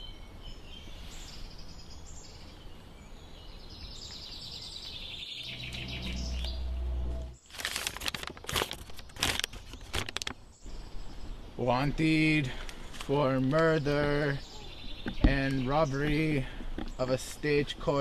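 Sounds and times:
birds chirping faintly: 0.0s - 18.0s
low hum: 5.3s - 7.4s
stiff paper crinkling: 7.4s - 10.4s.

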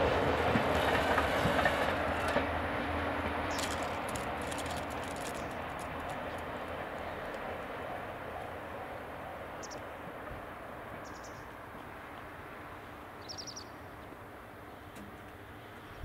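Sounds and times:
diesel train rumble: 0.0s - 13.2s
bird chirping trills: 11.0s - 11.5s, 13.2s - 13.9s.

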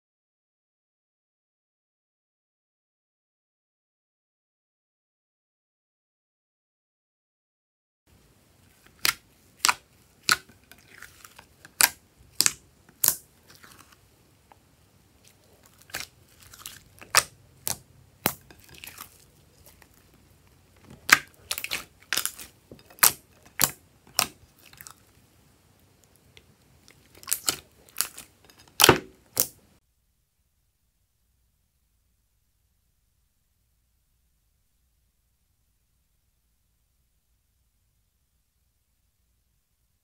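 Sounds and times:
sticky slime pops and clicks: 11.8s - 13.2s, 23.0s - 24.4s.

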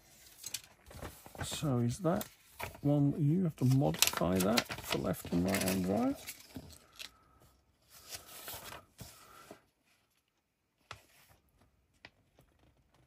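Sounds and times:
plastic parts rustling and clicking: 0.2s - 2.9s, 3.7s - 7.2s.

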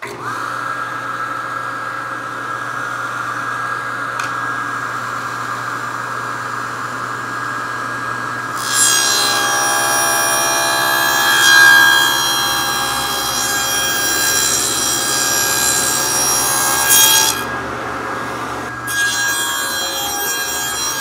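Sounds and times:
table saw whining: 0.0s - 21.0s
saw blade cutting plywood: 8.5s - 17.6s, 18.3s - 21.0s.

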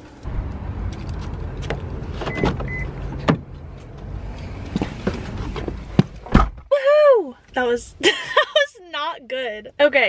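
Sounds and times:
car engine running: 0.0s - 6.3s
car door clicks and knocks: 1.6s - 3.5s
short high car beeps: 2.3s - 2.9s.

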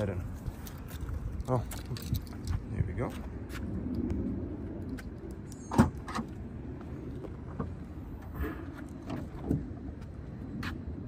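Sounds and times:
car trunk lid clicks and clunks: 5.7s - 6.4s.

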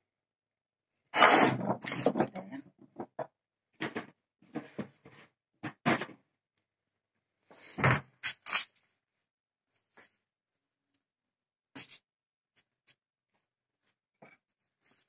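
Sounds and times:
hands handling things on a worktop: 11.7s - 15.0s.

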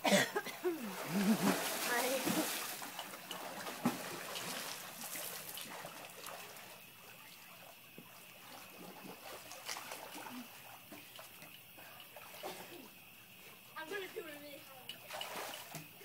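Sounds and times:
water trickling and lapping: 0.0s - 16.0s
small splashes: 0.6s - 16.0s.

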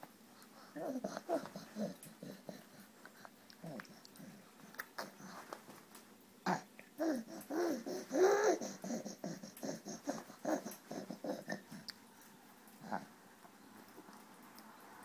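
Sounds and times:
baby babbling: 0.8s - 2.6s, 6.5s - 11.8s.

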